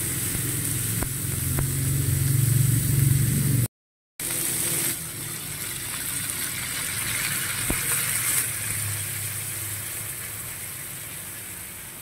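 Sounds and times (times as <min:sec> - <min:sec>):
crabs sizzling in a pan: 0:00.0 - 0:12.0
coconut milk pouring: 0:04.3 - 0:10.4.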